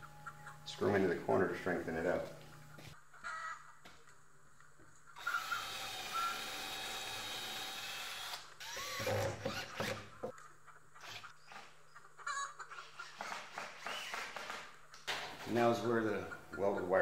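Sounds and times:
cordless drill boring into wood: 5.2 - 10.3.

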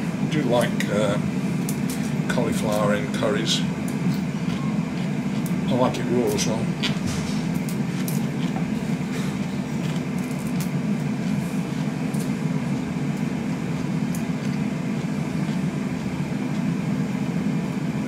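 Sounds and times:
low mechanical fan hum: 0.0 - 18.0.

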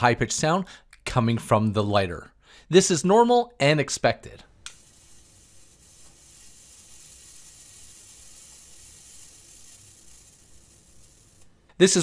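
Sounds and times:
electric arc lighter hissing: 4.6 - 12.0.

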